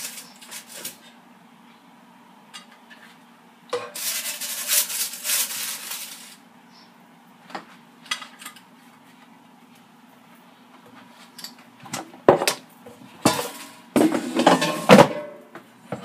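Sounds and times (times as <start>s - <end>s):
spatula scraping metal basket: 0.0s - 1.1s, 3.8s - 6.4s.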